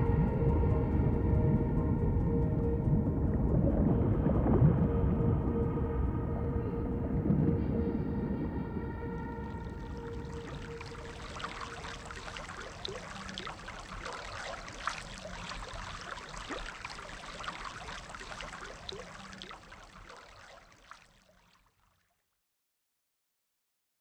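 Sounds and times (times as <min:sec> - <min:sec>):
water trickling: 0:09.2 - 0:22.1
small crackles and ticks: 0:09.9 - 0:21.7.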